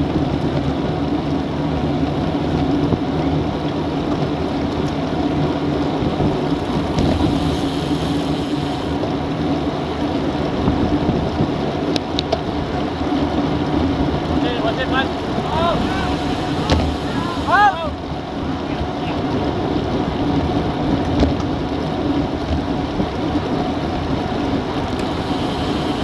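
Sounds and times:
bicycle road noise: 0.0 - 26.0
wind buffeting microphone: 0.0 - 26.0
bright hiss: 15.5 - 17.8.

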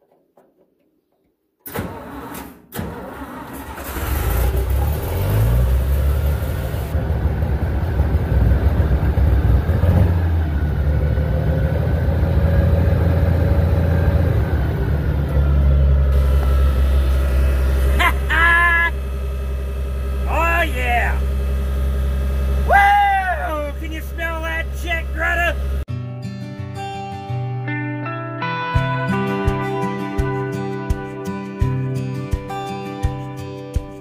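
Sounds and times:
tractor diesel engine starting: 1.6 - 25.9.

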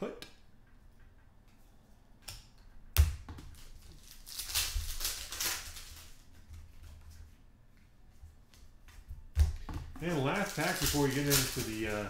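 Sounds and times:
foil wrapper crinkling and tearing: 3.6 - 6.3, 10.0 - 12.0.

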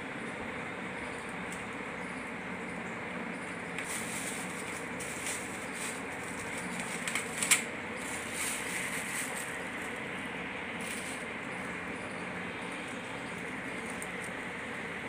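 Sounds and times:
steady background hiss: 0.0 - 15.0
plastic bag crinkling: 3.8 - 9.9.

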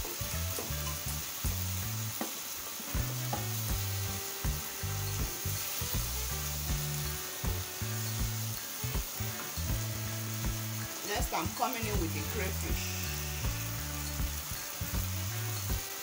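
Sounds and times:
food sizzling in a frying pan: 0.0 - 16.0
spatula scraping and knocking pan: 2.2 - 6.1.

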